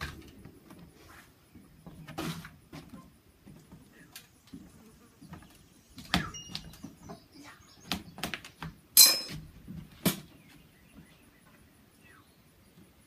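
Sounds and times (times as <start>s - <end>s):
ringing metallic clink: 9.0s - 9.4s.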